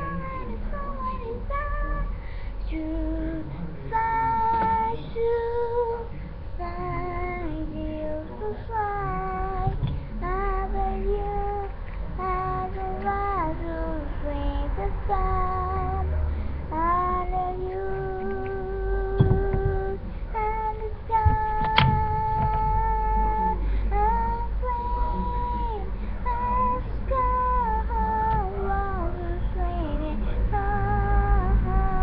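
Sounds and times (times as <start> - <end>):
high voice singing: 0.0 - 32.0
low rumble: 0.0 - 32.0.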